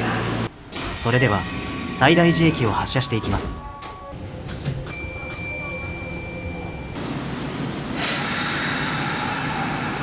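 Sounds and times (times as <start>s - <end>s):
air brakes hissing: 8.0s - 10.0s.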